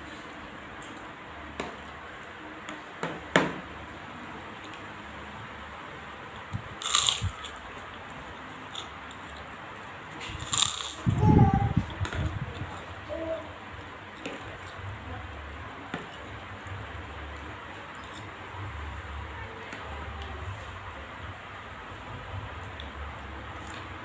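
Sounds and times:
cracker crunching: 6.8 - 7.6, 10.2 - 11.0.

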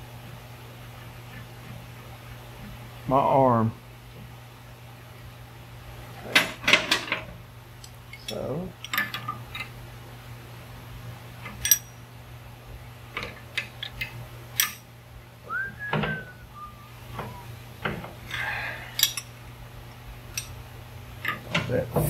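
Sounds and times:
steady low hum: 0.0 - 22.0
wrenches clinking on metal fitting: 11.5 - 11.9, 13.6 - 14.8, 19.0 - 19.3.

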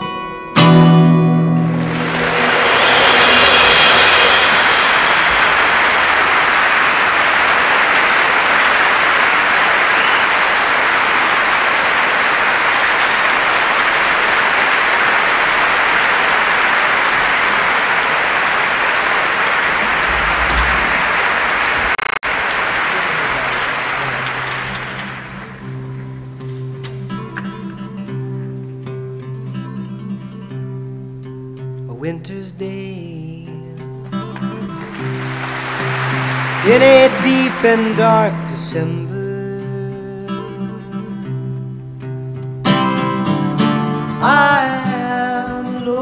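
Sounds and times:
audience applauding: 1.3 - 26.6, 34.4 - 39.8.

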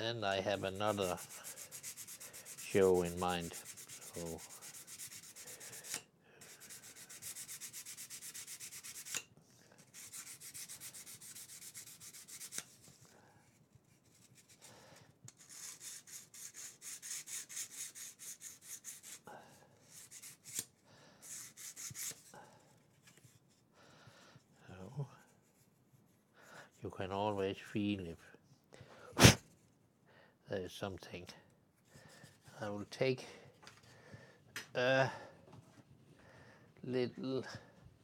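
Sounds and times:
sanding sponge rubbing wood: 0.4 - 9.2, 9.9 - 12.8, 15.4 - 19.2.

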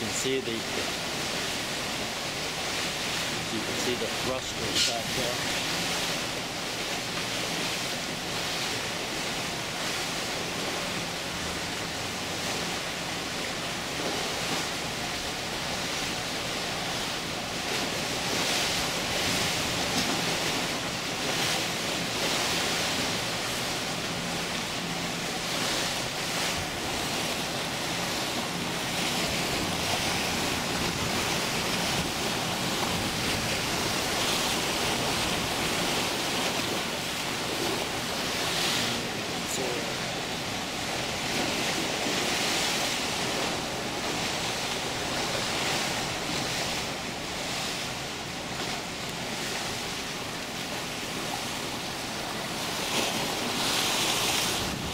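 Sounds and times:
churning water rushing: 0.0 - 54.9
wind buffeting microphone: 26.1 - 37.0, 54.4 - 54.9.

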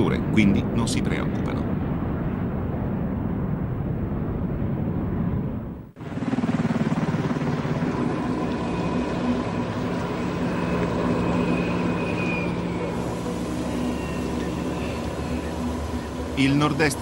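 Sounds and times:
jet engines running: 5.9 - 17.0.

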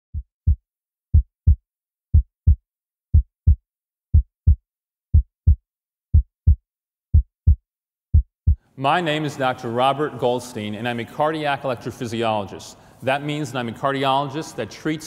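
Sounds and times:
heartbeat thumps: 0.1 - 8.6.

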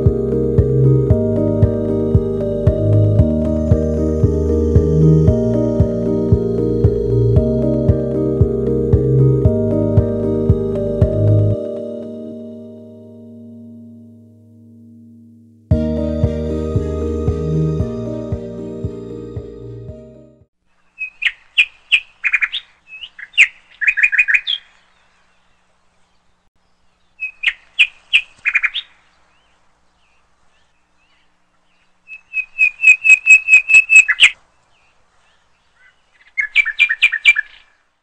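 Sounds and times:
songbird chirping: 0.0 - 38.0.

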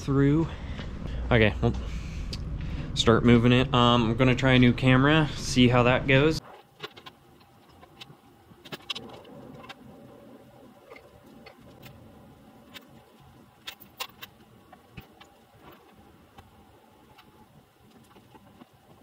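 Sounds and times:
faint low rumble: 0.0 - 6.4.

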